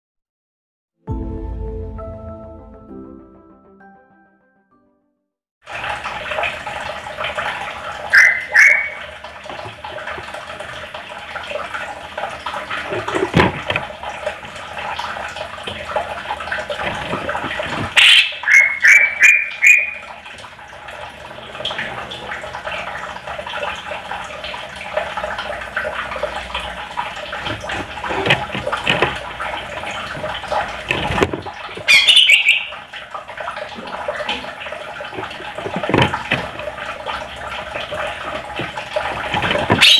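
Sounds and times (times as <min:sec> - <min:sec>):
bird singing chattering song: 0:18.0 - 0:20.0, 0:31.9 - 0:32.7.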